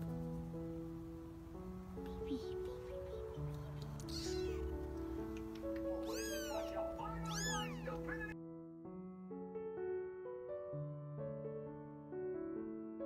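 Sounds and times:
background music: 0.0 - 13.0
kitten meowing: 2.2 - 8.4.

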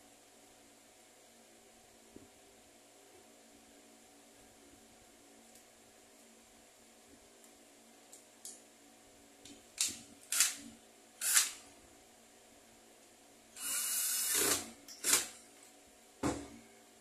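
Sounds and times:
cordless drill running: 11.2 - 11.6, 13.6 - 15.3.

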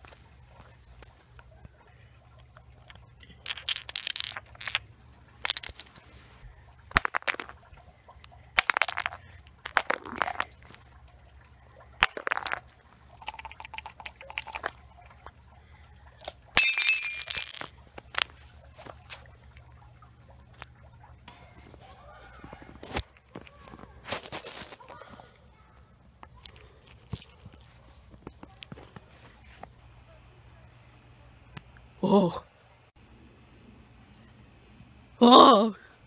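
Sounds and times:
ice breaking on concrete: 8.6 - 10.8, 12.0 - 12.7, 16.6 - 18.3.

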